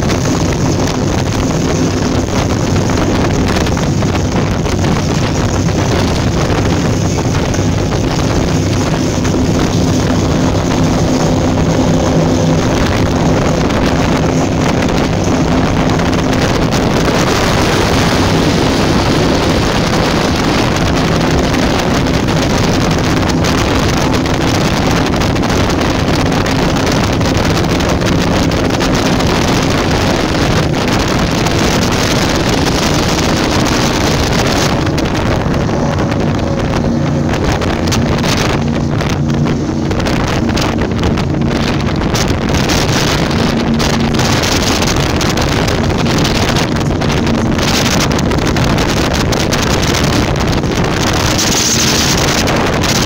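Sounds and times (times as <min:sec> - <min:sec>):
powerboat engines droning: 0:00.0 - 0:53.0
rushing spray: 0:00.0 - 0:53.0
wind buffeting microphone: 0:00.0 - 0:53.0.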